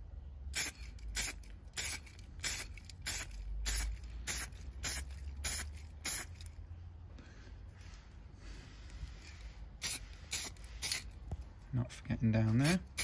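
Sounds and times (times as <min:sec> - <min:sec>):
spray paint can hissing: 0:00.5 - 0:06.4, 0:09.8 - 0:11.1.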